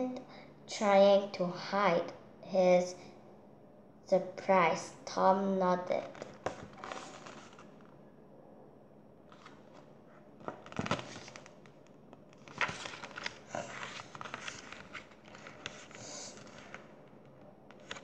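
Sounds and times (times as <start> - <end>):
book pages turning: 6.0 - 7.9, 9.3 - 18.0.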